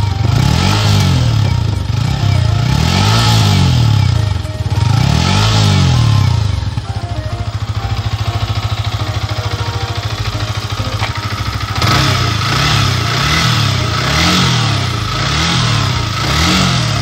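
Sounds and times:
motorcycle engine idling: 0.0 - 17.0
motorcycle engine revving: 0.0 - 17.0.

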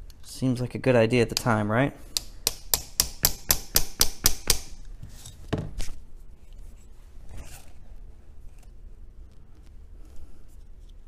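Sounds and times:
hammer tapping on metal: 1.3 - 1.6, 2.2 - 4.8.

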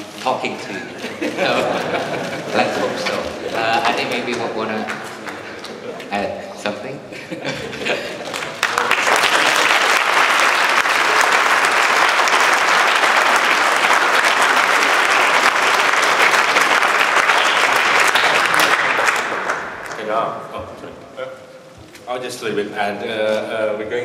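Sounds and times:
audience applauding: 1.0 - 6.1, 7.8 - 20.2.

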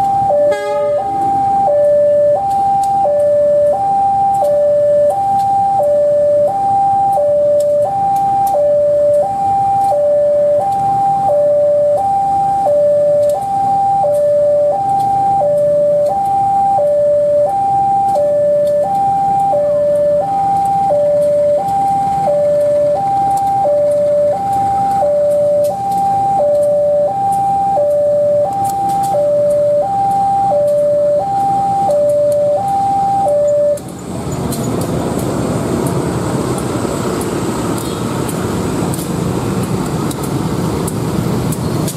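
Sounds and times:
two-tone crossing alarm: 0.0 - 34.1
diesel locomotive running: 0.0 - 41.9.

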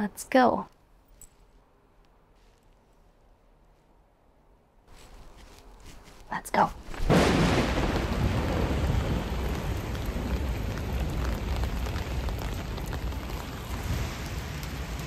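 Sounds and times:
heavy rain pouring: 7.0 - 15.0
low rumble: 7.0 - 15.0.

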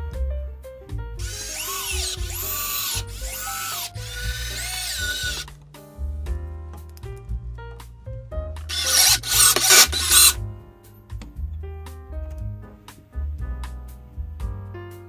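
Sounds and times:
background music: 0.0 - 15.0
power drill-driver whirring: 1.2 - 5.5, 8.7 - 10.4.

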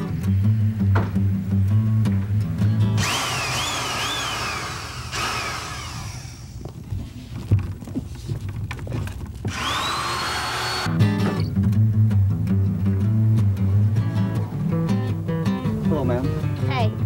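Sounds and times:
electric drill whining: 3.0 - 6.7, 9.5 - 10.9.

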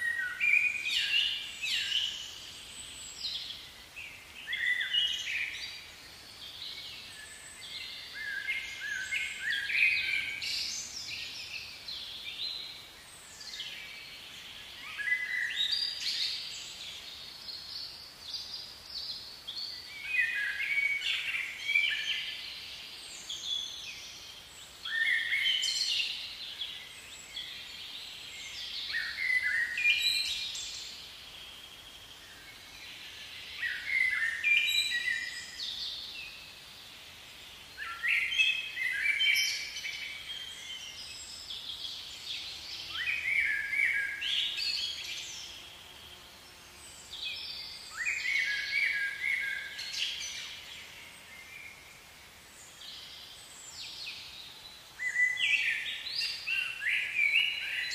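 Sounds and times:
faint background hiss: 0.0 - 57.9
songbird singing: 0.0 - 57.9.

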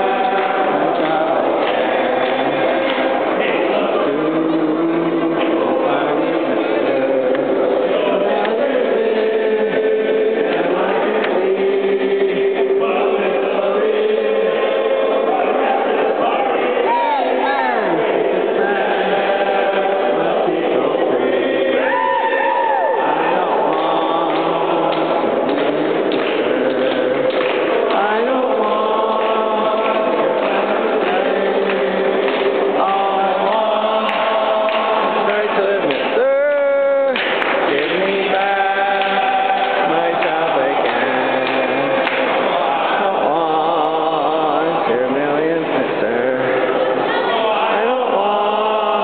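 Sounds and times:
crowd singing long held notes: 0.0 - 49.0.

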